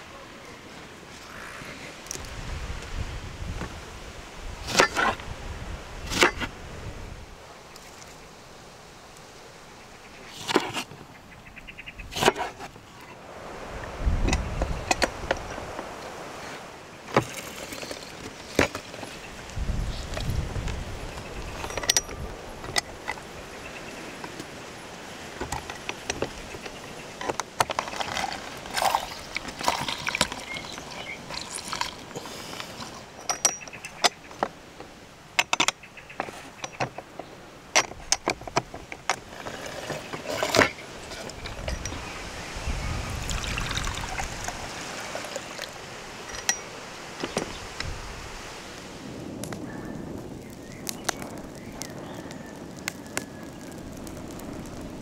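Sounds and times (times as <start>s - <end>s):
wood fire crackling: 12.2s - 42.3s, 43.2s - 55.0s.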